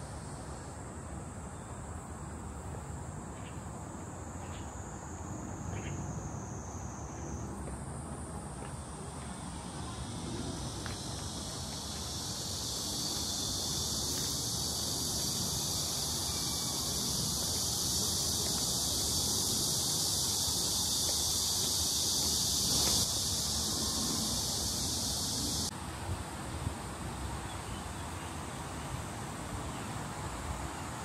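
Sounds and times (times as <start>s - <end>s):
high-pitched insect buzz: 9.7s - 25.7s.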